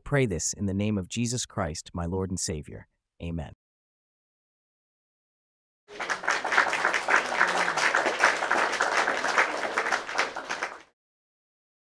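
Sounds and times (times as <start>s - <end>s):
crowd applause: 5.9s - 11.0s.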